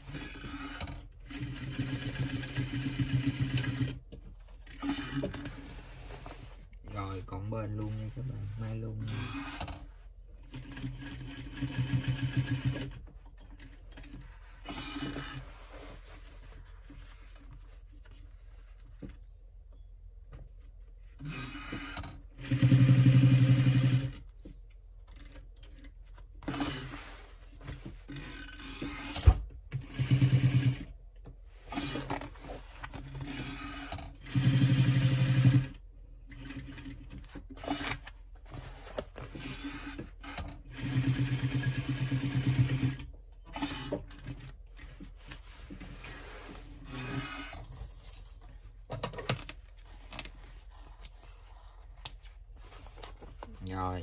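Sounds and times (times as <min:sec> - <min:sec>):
sewing machine stitching: 0:00.1 - 0:04.0, 0:04.6 - 0:05.8, 0:10.4 - 0:15.4, 0:21.2 - 0:24.2, 0:28.1 - 0:30.9, 0:33.1 - 0:38.1, 0:39.3 - 0:45.1, 0:45.8 - 0:47.7.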